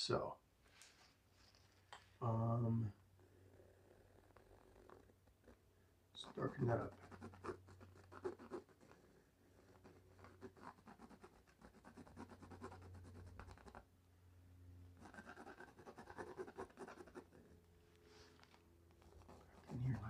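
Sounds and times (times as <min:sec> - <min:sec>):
pencil scratching on canvas: 0:06.2 - 0:13.8, 0:15.0 - 0:17.5, 0:19.0 - 0:20.0.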